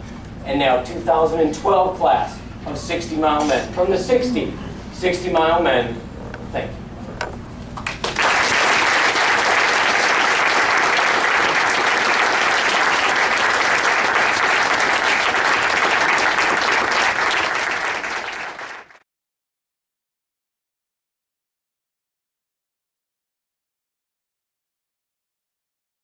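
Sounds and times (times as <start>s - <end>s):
audience applauding: 7.8s - 19.0s.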